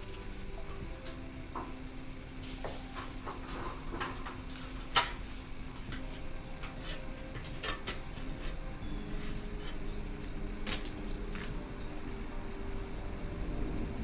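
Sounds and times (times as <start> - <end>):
stones and tools knocking: 5.8 - 8.6.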